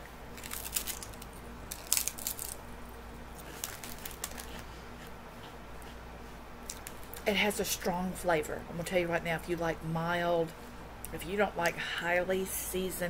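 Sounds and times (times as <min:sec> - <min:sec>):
crisp chip crunching: 0:00.3 - 0:04.7.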